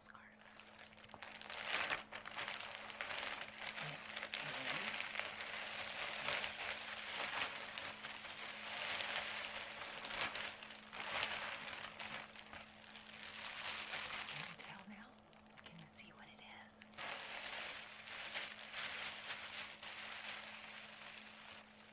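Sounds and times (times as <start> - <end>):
plastic bags crinkling: 0.2 - 21.9.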